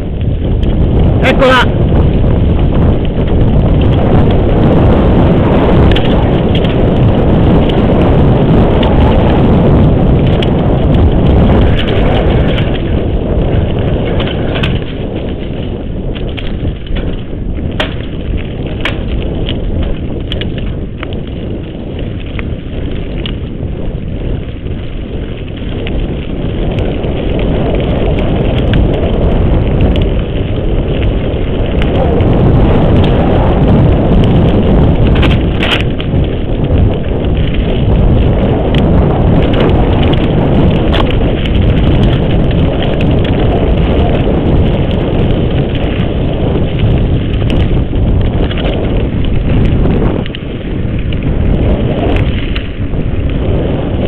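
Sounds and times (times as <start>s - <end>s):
bike clicks and rattles: 0.0s - 54.0s
bike tyre noise on dirt: 0.0s - 54.0s
wind rushing: 0.0s - 54.0s.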